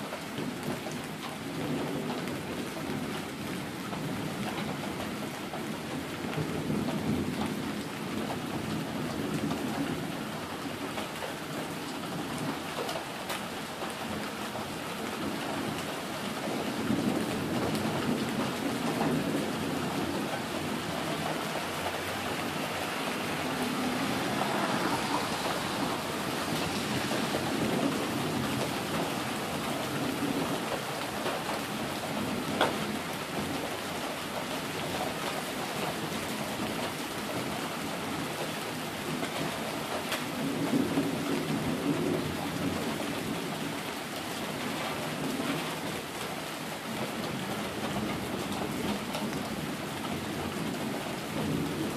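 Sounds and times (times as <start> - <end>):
rain on pavement: 0.0 - 51.9
thunder rumbling: 14.0 - 33.6.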